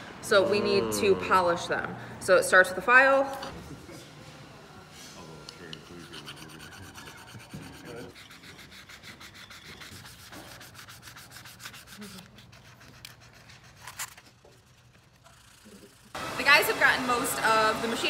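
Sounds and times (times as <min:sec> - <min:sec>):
metal file scraping brass: 0:05.6 - 0:14.2
brass rubbed on sandpaper: 0:05.7 - 0:16.0.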